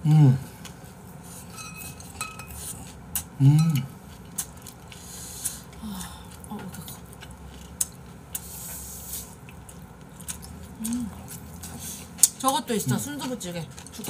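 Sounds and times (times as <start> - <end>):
person humming mm: 0.0 - 0.6, 3.4 - 3.9, 10.8 - 11.3
utensils clinking on dishes: 1.4 - 2.8.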